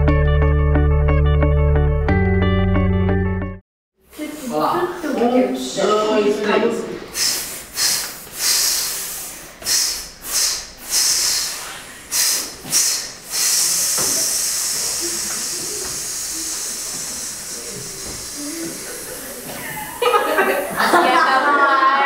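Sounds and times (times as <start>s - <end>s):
choir singers hissing: 7.0s - 21.7s.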